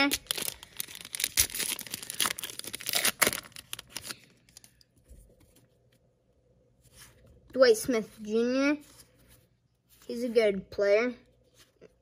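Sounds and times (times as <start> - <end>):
wrapper tearing and crinkling: 0.0 - 4.7.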